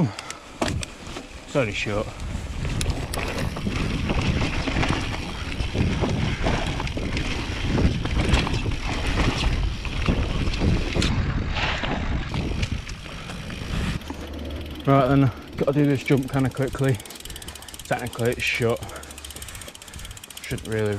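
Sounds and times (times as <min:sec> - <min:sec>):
bike rattling over bumps: 0:00.4 - 0:20.9
bike tyres rolling over dirt: 0:00.5 - 0:20.9
wind buffeting microphone: 0:01.6 - 0:18.1.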